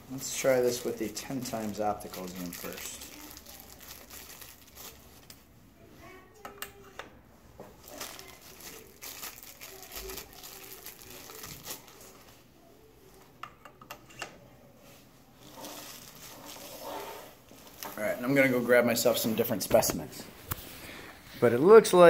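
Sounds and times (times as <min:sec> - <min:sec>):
plastic bag crinkling: 0:00.5 - 0:05.4, 0:07.8 - 0:12.3, 0:15.4 - 0:18.3.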